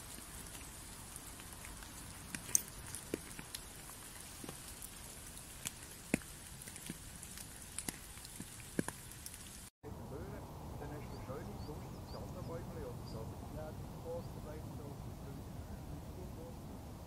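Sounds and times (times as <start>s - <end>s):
water drops on wet leaves: 0.0s - 9.7s
faint steady hiss: 0.0s - 17.0s.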